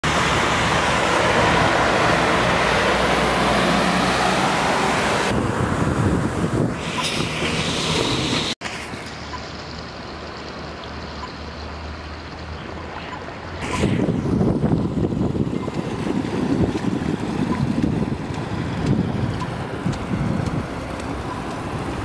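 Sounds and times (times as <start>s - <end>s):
truck engine: 0.0s - 22.0s
tyres hissing through water: 6.7s - 14.4s.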